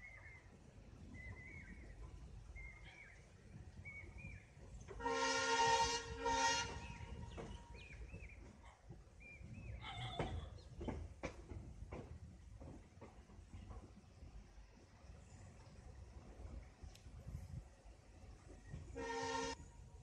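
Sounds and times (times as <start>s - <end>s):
moving train rumble: 0.0s - 20.0s
train horn: 5.0s - 7.4s, 18.9s - 19.8s
wheels clicking over rail joints: 6.6s - 14.6s.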